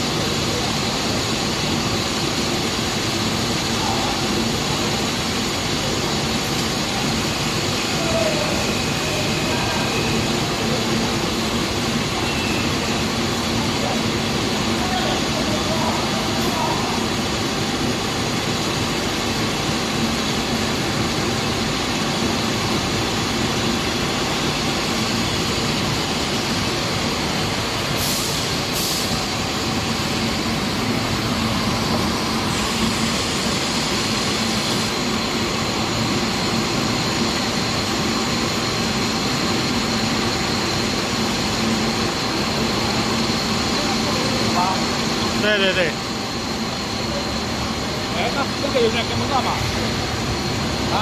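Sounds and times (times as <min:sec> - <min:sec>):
machinery humming: 0:00.0 - 0:51.0
air hissing: 0:24.2 - 0:38.6.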